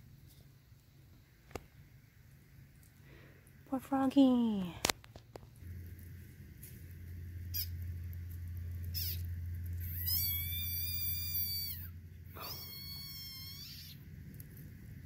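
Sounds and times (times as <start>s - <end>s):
frog distress scream: 8.9s - 14.1s.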